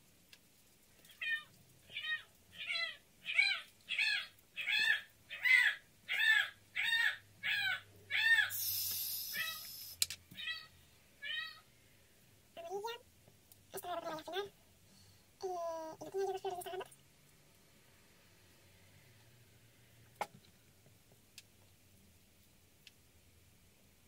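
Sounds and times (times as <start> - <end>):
cat meowing: 1.1 - 8.6, 9.3 - 11.7
short burst of hiss: 8.5 - 10.0.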